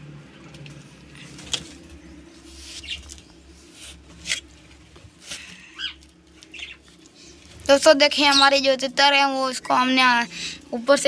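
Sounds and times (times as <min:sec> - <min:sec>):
low steady hum: 0:00.0 - 0:11.0
small birds chirping: 0:01.1 - 0:04.4, 0:05.4 - 0:10.6.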